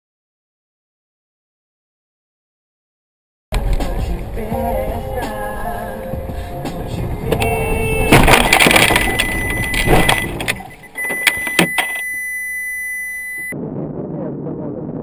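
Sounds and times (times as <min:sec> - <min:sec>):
steady high-pitched tone: 0:04.6 - 0:13.6
car collision impact: 0:08.1 - 0:10.6.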